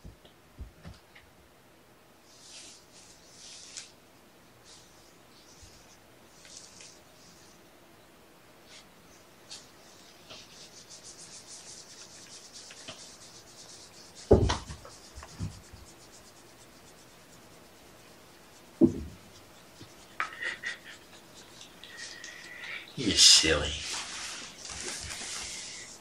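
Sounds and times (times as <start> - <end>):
fingers scratching cat fur: 9.5 - 22.2
heavy thumps: 14.1 - 15.9, 18.7 - 19.3.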